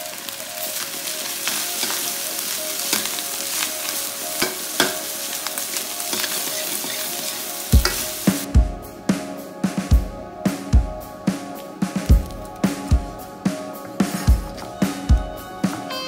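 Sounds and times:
rice sizzling in a wok: 0:00.0 - 0:08.5.

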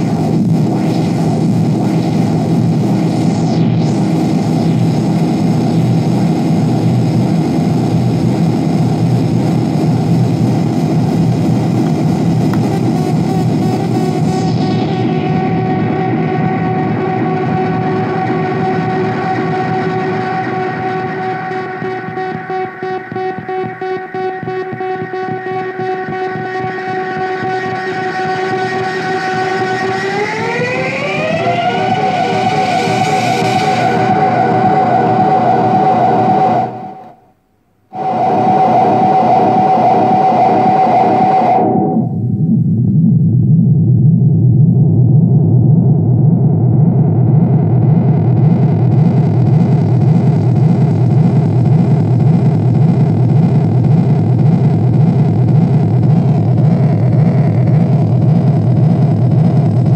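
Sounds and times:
synthesizer drone: 0:00.0 - 0:37.3, 0:37.9 - 0:59.9
low rumble: 0:41.8 - 0:59.9.

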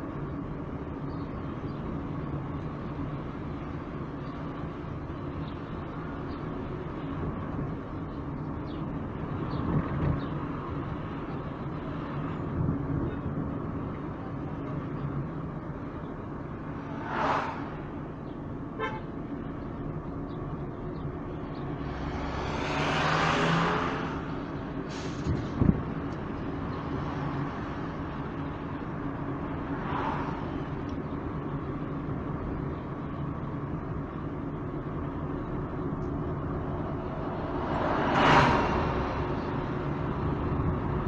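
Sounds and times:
road noise: 0:00.0 - 0:41.0
vehicle engine hum: 0:00.0 - 0:41.0.

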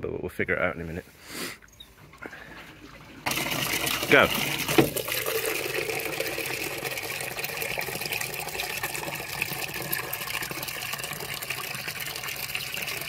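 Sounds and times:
water pouring into plastic jug: 0:02.1 - 0:13.0
water splashing into tank: 0:02.2 - 0:13.0.

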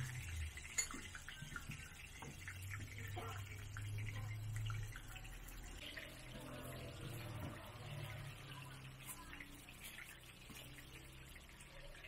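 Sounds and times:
pancakes sizzling in oil: 0:00.0 - 0:12.0.

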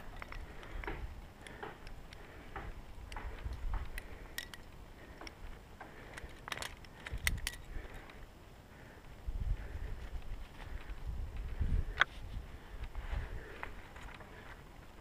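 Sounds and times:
wind rumble on microphone: 0:02.3 - 0:04.8, 0:09.1 - 0:15.0
carabiners clinking together: 0:03.1 - 0:05.4, 0:06.0 - 0:08.2.

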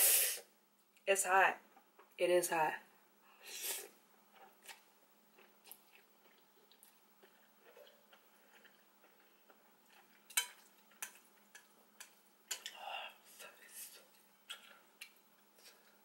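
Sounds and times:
person chewing noodles: 0:03.6 - 0:12.8.

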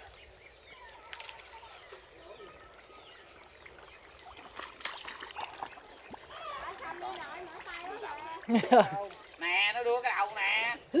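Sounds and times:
small water splashes: 0:00.0 - 0:10.6
hand squelching in wet mud: 0:03.7 - 0:09.4.

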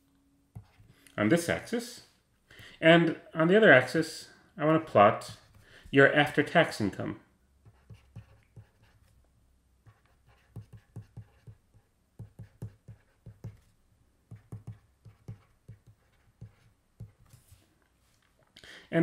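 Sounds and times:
stylus tapping and scratching on screen: 0:00.5 - 0:01.2, 0:07.6 - 0:18.5.

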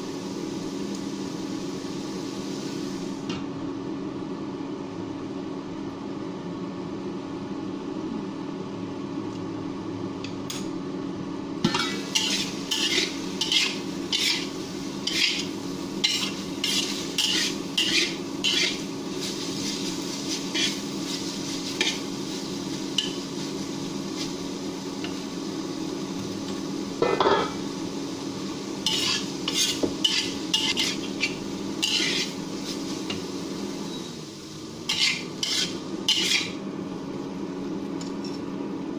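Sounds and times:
food sizzling: 0:00.0 - 0:03.2, 0:11.6 - 0:37.9
induction cooktop hum: 0:00.0 - 0:38.9
spatula scraping a wok: 0:11.7 - 0:24.4, 0:28.8 - 0:33.2, 0:34.8 - 0:36.6.

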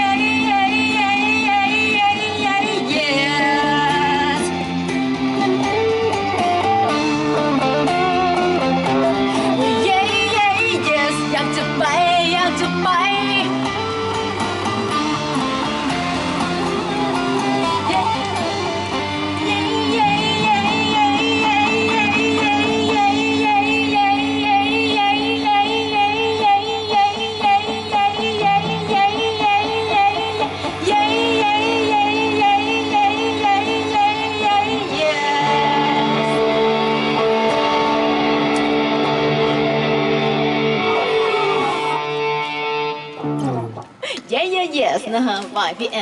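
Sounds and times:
woman singing with vibrato: 0:00.0 - 0:07.0, 0:08.0 - 0:13.8, 0:16.0 - 0:38.2
electric guitar: 0:00.0 - 0:44.4.

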